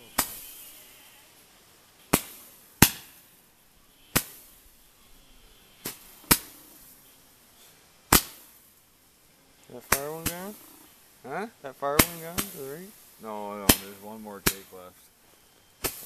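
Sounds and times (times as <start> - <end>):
fireworks bangs: 0.0 - 0.8, 2.0 - 3.4, 9.7 - 10.7, 11.3 - 15.0, 15.8 - 16.0.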